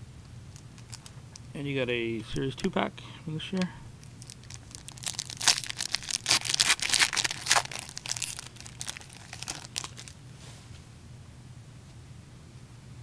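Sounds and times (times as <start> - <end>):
wrapper tearing and crinkling: 0.6 - 1.1, 4.0 - 10.2.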